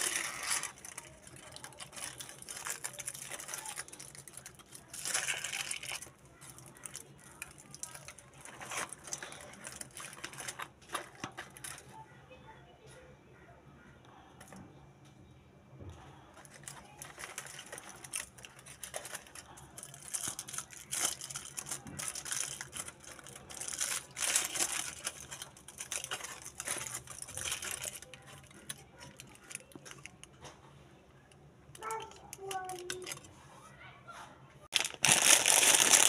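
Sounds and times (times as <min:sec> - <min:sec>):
foil wrapper crinkling: 0:00.0 - 0:12.0, 0:16.4 - 0:30.3, 0:34.7 - 0:36.0.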